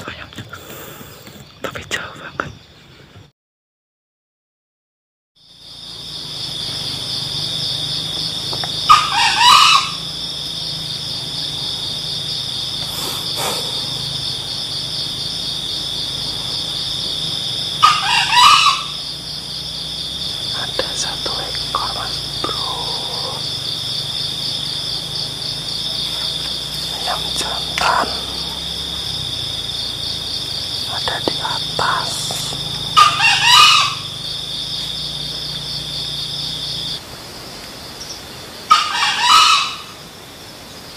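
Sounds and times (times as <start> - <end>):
high pulsing insect drone: 5.4 - 40.9
faint bird calls: 8.0 - 37.0, 38.0 - 40.1
rooster crowing: 8.9 - 10.1, 17.8 - 19.0, 32.8 - 34.3, 38.7 - 40.0.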